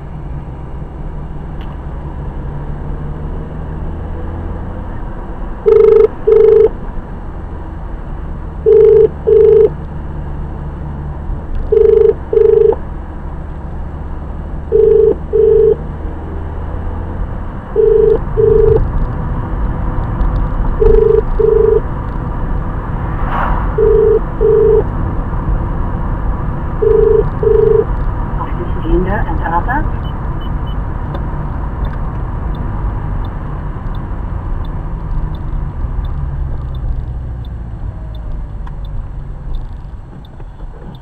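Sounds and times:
car engine and road hum: 0:00.0 - 0:41.0
telephone ringback beeps: 0:05.7 - 0:06.7, 0:08.7 - 0:09.7, 0:11.7 - 0:12.8, 0:14.7 - 0:15.8, 0:17.8 - 0:18.8, 0:20.8 - 0:21.8, 0:23.8 - 0:24.8, 0:26.8 - 0:27.9.

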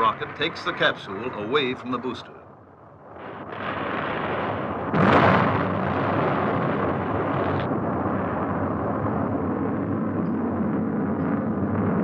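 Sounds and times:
roar of burning fuel: 0:03.0 - 0:12.0
rocket explosion blast: 0:03.0 - 0:12.0.

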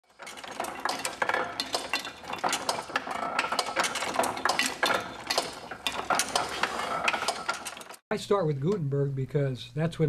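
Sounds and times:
small metal pieces clicking: 0:00.2 - 0:08.0.

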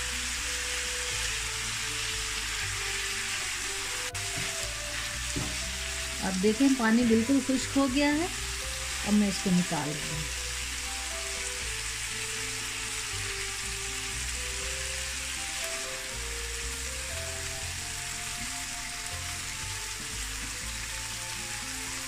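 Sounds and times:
chicken sizzling in oil: 0:00.0 - 0:22.0
soft background music: 0:00.0 - 0:22.0.

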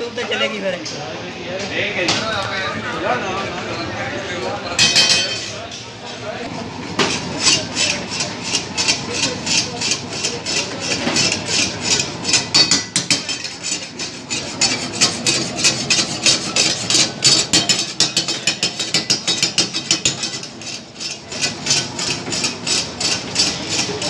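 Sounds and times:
metal spatula scraping a wok: 0:07.0 - 0:24.0.

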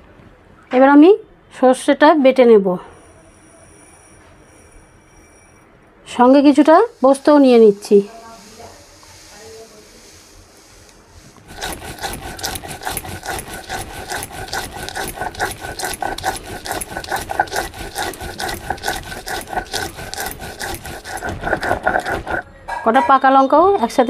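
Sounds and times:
stone grinding on stone: 0:11.3 - 0:23.2.

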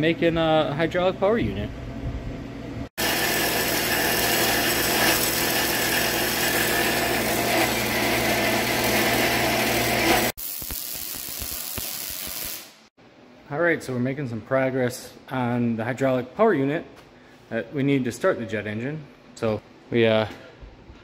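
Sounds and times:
band saw cutting steel: 0:03.0 - 0:10.4
arc welding crackling hiss: 0:10.0 - 0:12.9.

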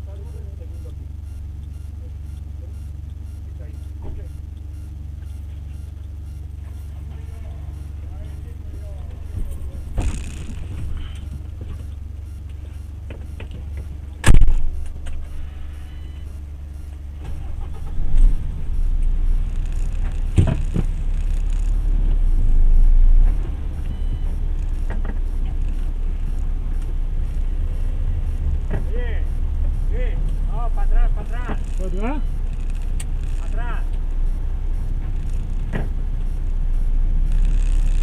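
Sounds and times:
diesel engine drone in cab: 0:00.0 - 0:38.0
clicks: 0:31.2 - 0:34.0.

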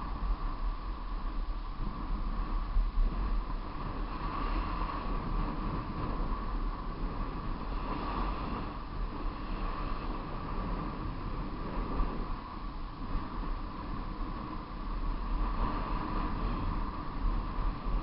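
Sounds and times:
continuous whirring hum: 0:00.0 - 0:18.0
wind buffeting microphone: 0:00.0 - 0:18.0.

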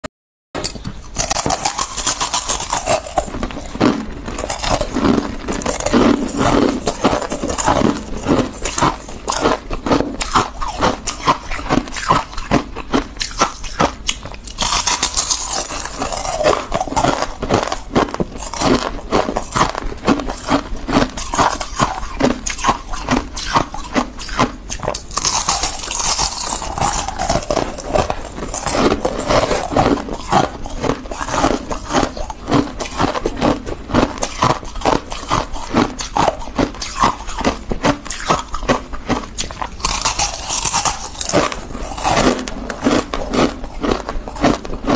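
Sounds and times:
frost crunching and crackling: 0:00.6 - 0:44.9.

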